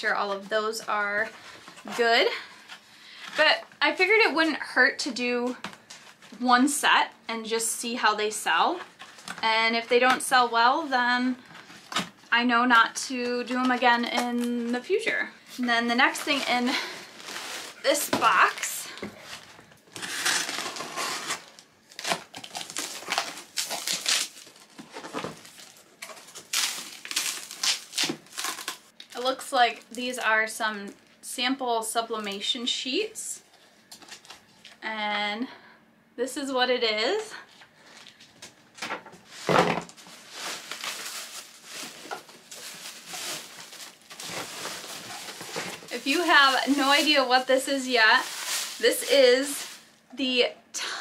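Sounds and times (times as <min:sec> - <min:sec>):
plastic and foam rustling: 0:08.7 - 0:30.3, 0:37.8 - 0:50.0
cardboard boxes rustling and scraping: 0:15.6 - 0:21.6, 0:39.2 - 0:49.8
scratchy crinkles: 0:39.2 - 0:49.9.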